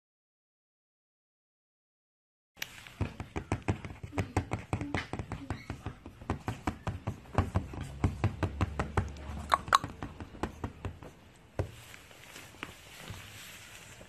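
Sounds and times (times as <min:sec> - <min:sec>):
puppy pawing a cushion: 0:03.0 - 0:14.0.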